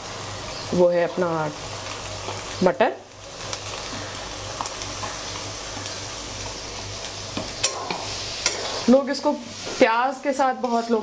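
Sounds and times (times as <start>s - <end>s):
food sizzling in wok: 0.0s - 11.0s
spatula scraping pan: 7.4s - 9.0s.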